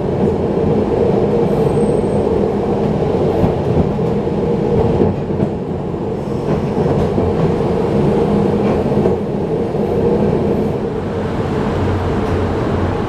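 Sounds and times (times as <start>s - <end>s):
streetcar hum: 0.0s - 13.0s.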